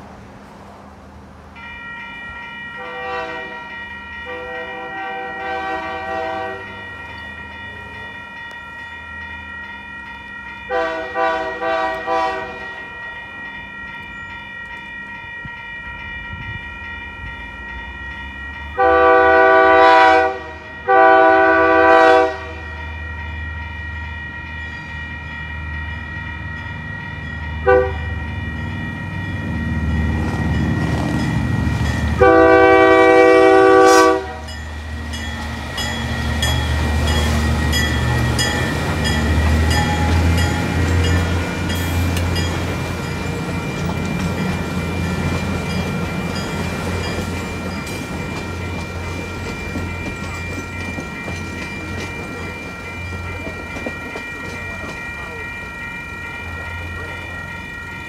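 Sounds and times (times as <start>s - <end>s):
railroad crossing bells ringing: 0.0s - 58.0s
train horn blasts: 2.8s - 6.9s, 10.7s - 12.8s, 18.8s - 22.8s, 27.6s - 28.2s, 32.2s - 34.6s.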